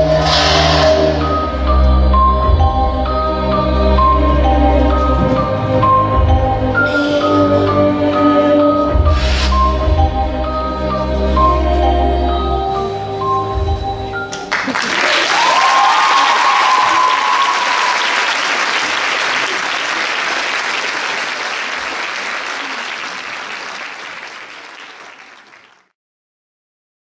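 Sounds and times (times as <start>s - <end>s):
audience applauding: 14.3s - 25.9s
high call from crowd: 15.0s - 21.4s.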